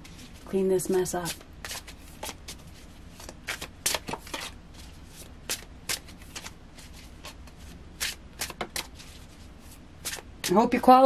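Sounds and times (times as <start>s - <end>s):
cards rustling while shuffled: 0.0s - 10.6s
crisp card slaps: 3.2s - 4.6s, 8.0s - 9.0s.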